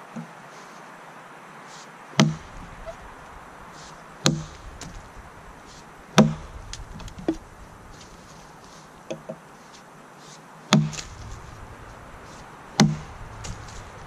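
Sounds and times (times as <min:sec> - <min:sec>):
axe chopping into log: 0:02.2 - 0:02.8, 0:04.2 - 0:05.0, 0:06.2 - 0:07.4, 0:10.7 - 0:11.5, 0:12.8 - 0:13.9.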